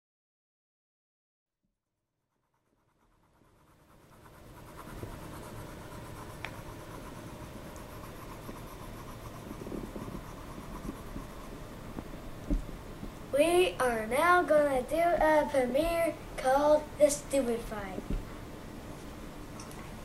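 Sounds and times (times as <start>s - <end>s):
low room noise: 2.4s - 20.0s
faint rustling and scratching: 3.3s - 12.1s.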